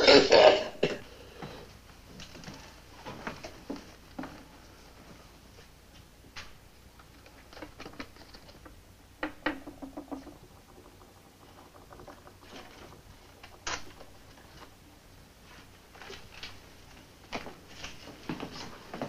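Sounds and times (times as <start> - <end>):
clicks and taps of small objects: 7.2 - 14.1.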